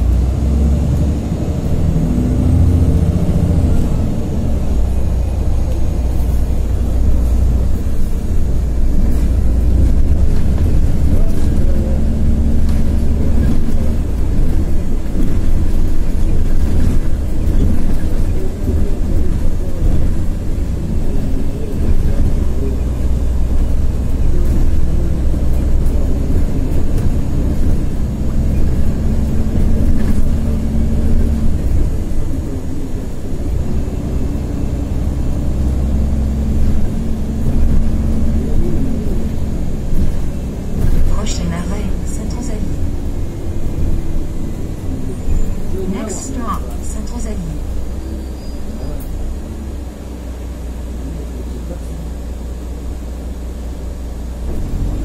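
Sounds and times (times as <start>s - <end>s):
bus diesel engine running: 0.0s - 55.0s
road noise: 0.0s - 55.0s.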